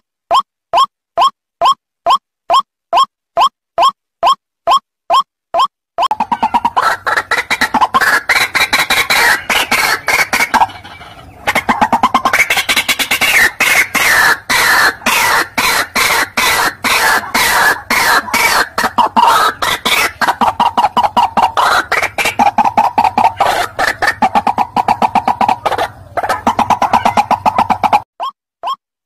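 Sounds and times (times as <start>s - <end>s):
waterhen calling harsh notes: 6.1s - 28.0s.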